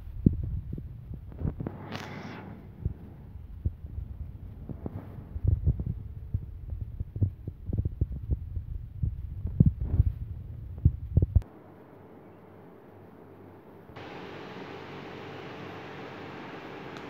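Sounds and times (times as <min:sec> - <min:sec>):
faint steady hiss: 0:11.4 - 0:17.0.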